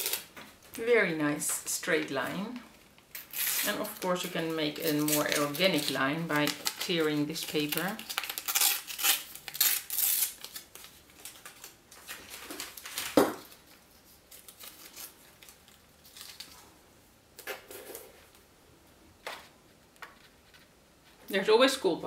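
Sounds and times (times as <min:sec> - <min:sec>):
tape ripping and crinkling: 0:00.0 - 0:00.4, 0:02.7 - 0:16.7.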